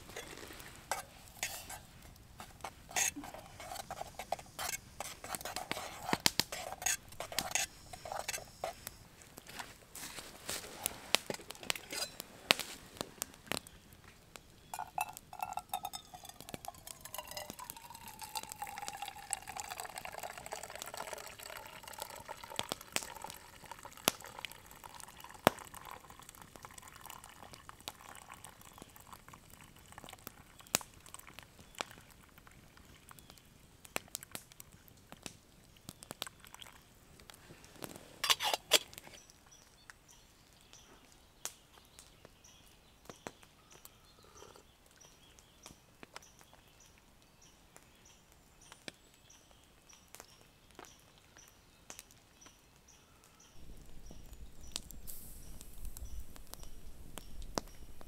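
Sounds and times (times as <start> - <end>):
coffee pouring into metal mug: 0.0 - 8.9, 14.7 - 33.2, 36.4 - 36.8
campfire crackling: 0.0 - 58.0
spoon clinking in metal pot: 11.8 - 12.2, 14.8 - 20.3.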